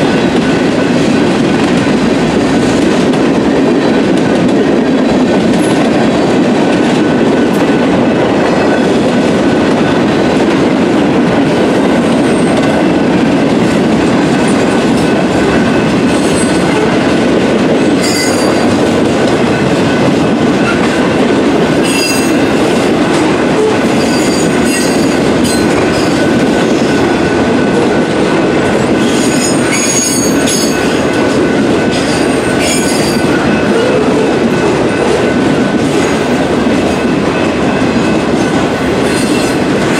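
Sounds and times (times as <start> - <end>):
freight train rumbling on rails: 0.0 - 39.9
train wheel squeals: 18.0 - 18.8, 21.8 - 22.5, 23.7 - 27.1, 28.9 - 31.1, 31.9 - 36.3, 38.0 - 39.7.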